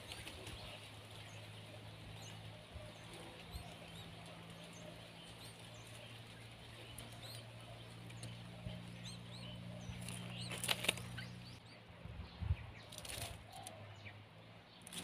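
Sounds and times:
bird wingbeats: 0.0 - 1.9, 2.8 - 11.4
palm leaves rustling: 0.0 - 11.6, 12.8 - 13.8, 14.8 - 15.0
steady low hum: 0.0 - 14.3
small birds chirping: 0.0 - 15.0.

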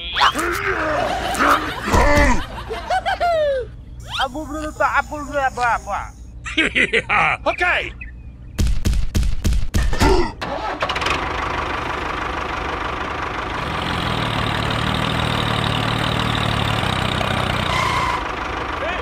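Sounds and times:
tractor engine starting: 10.4 - 19.0.

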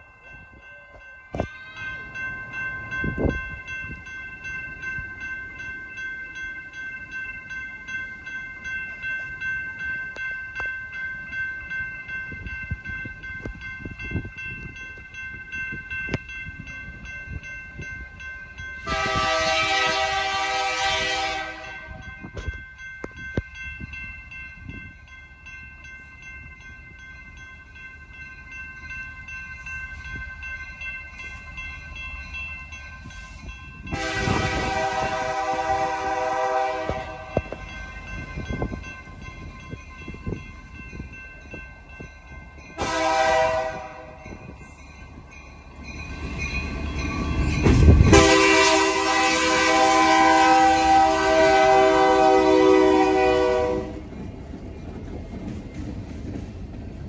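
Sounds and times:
railroad crossing bell ringing: 0.0 - 57.0
locomotive air horn blast: 18.8 - 22.0, 33.9 - 37.4, 42.8 - 44.1, 48.1 - 54.0.

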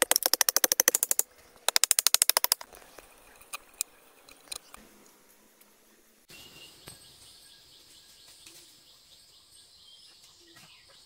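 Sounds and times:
rapid sharp clicks: 0.0 - 2.7.

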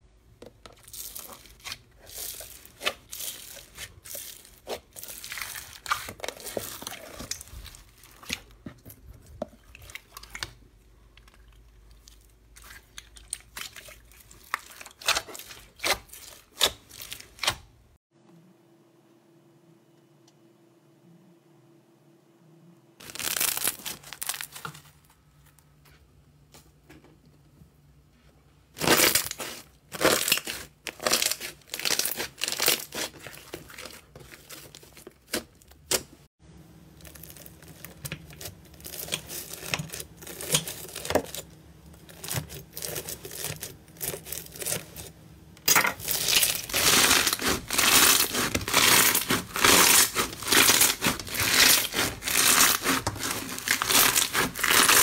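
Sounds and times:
hands squeezing crunchy slime: 0.8 - 17.6, 23.0 - 24.8, 28.8 - 36.0, 37.0 - 45.1, 46.0 - 55.0
slime crackling and popping: 28.8 - 36.0, 37.0 - 45.0, 45.7 - 55.0
knife slicing crunchy slime: 46.0 - 55.0.

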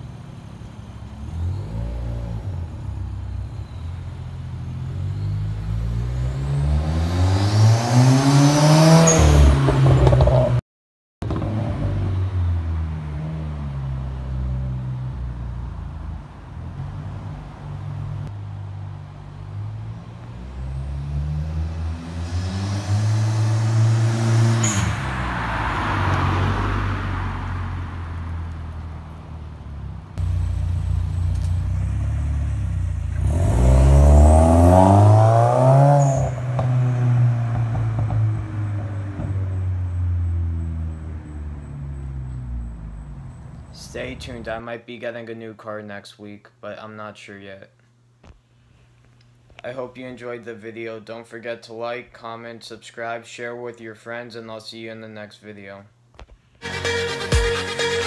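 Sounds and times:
car engine accelerating past: 4.9 - 10.6, 19.5 - 29.2, 30.2 - 42.6.

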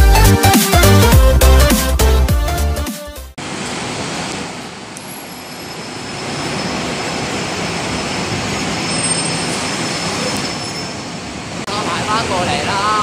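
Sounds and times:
bus engines running: 3.4 - 13.0.

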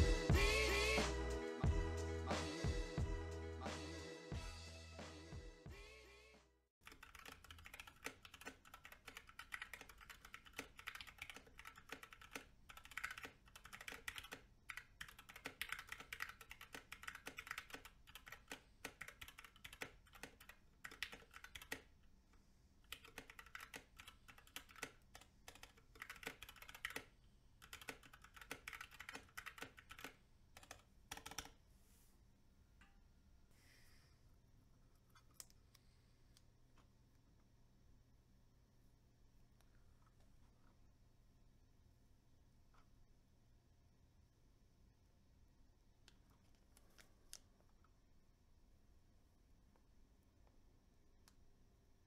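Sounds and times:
mechanical keyboard typing: 6.8 - 21.9, 22.9 - 31.6.

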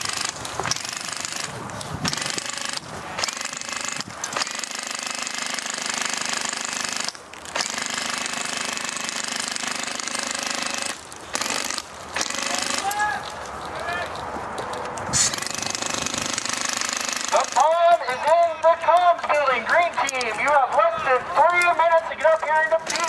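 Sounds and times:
airsoft minigun firing: 0.0 - 13.0, 15.2 - 17.8.

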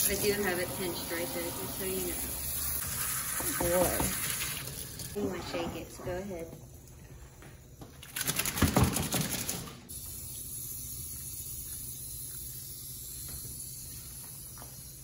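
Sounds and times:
dog shaking coat flapping: 8.0 - 9.8.

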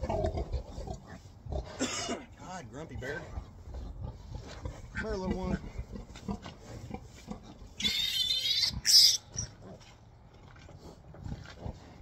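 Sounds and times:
piglet squealing: 7.8 - 9.6.

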